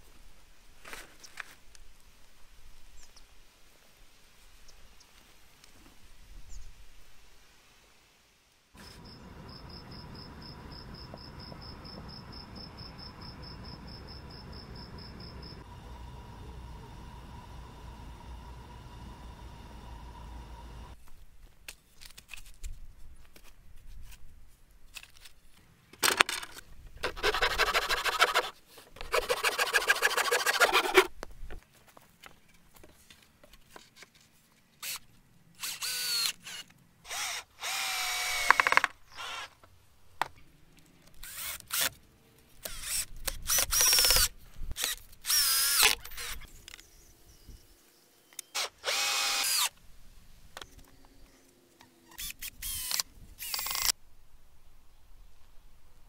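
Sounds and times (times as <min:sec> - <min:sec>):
cordless drill driving screws: 0:35.6 - 0:39.6, 0:41.2 - 0:41.9, 0:42.6 - 0:46.5, 0:48.4 - 0:49.8, 0:52.2 - 0:53.9.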